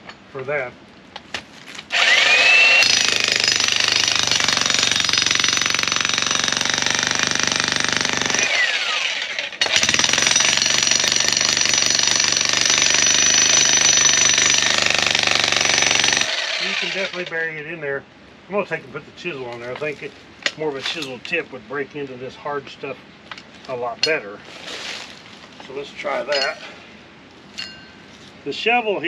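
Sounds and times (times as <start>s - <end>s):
motor whining: 1.9s - 3.2s
jack hammer hammering rock: 1.9s - 17.3s.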